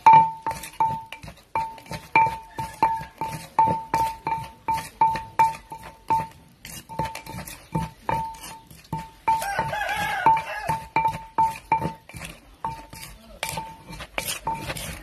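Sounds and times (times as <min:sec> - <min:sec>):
pestle pounding in a clay mortar: 0:00.0 - 0:15.0
rooster crowing: 0:02.4 - 0:03.4, 0:09.3 - 0:11.0.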